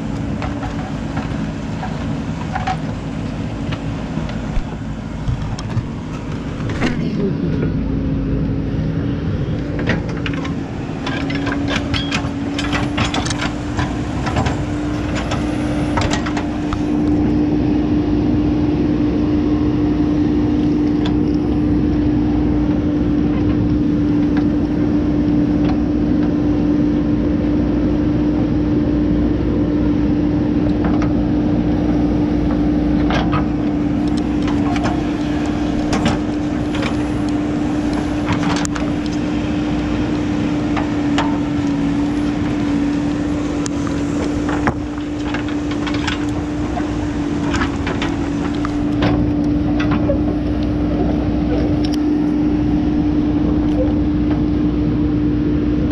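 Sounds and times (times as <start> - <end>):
diesel engine droning under load: 0.0 - 55.9
knocks and clatters: 0.2 - 3.0, 3.6 - 7.2, 9.7 - 17.2, 33.0 - 39.4, 40.6 - 50.4.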